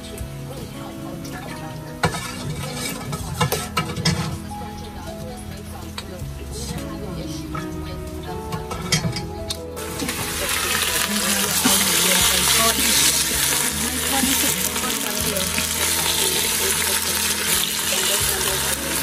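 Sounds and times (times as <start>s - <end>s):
metal tongs turning meat: 1.4s - 4.6s, 6.0s - 19.0s
meat sizzling in hot oil: 2.0s - 4.6s, 9.8s - 19.0s.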